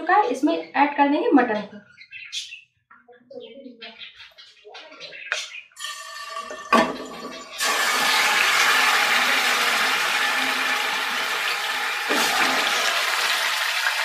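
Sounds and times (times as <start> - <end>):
meat sizzling in hot oil: 5.8 - 14.0.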